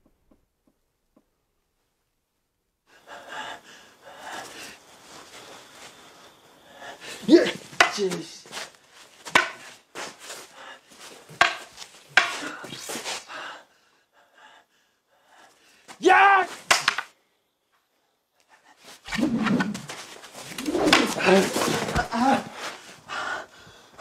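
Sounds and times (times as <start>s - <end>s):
hard breathing: 2.9s - 7.4s, 10.0s - 16.0s, 20.6s - 24.0s.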